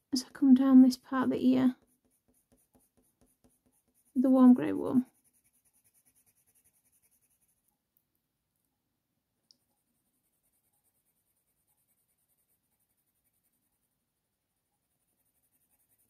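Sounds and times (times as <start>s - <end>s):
pencil scratching on paper: 0.6s - 7.7s, 9.7s - 13.9s, 14.9s - 16.0s.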